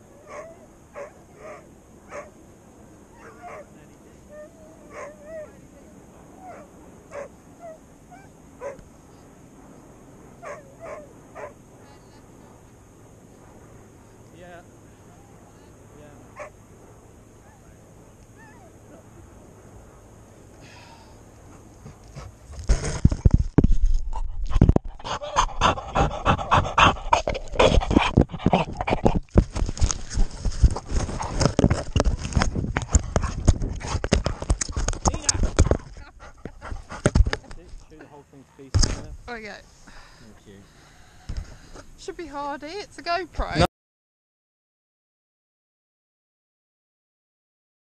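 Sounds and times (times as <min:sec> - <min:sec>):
dog yipping and barking: 0:00.2 - 0:02.3, 0:10.4 - 0:11.6, 0:18.4 - 0:18.7
dog panting hard: 0:21.5 - 0:22.7, 0:24.2 - 0:29.2, 0:35.5 - 0:37.4.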